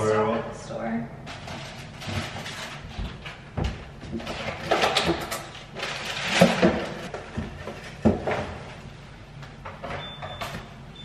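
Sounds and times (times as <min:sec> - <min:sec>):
items knocking and clattering: 0:01.3 - 0:08.9.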